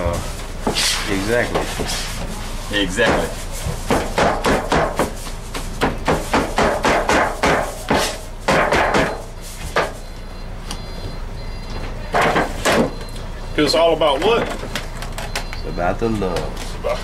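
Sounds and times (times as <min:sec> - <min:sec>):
cleaver chopping meat: 0:03.0 - 0:09.2.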